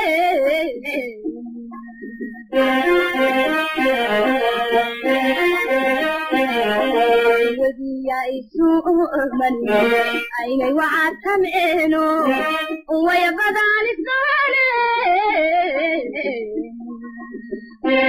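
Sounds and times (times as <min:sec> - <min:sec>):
high-pitched voice singing: 0:00.0 - 0:02.6, 0:07.4 - 0:18.0
light instrumental backing: 0:01.8 - 0:07.7, 0:09.1 - 0:10.6, 0:17.3 - 0:18.0.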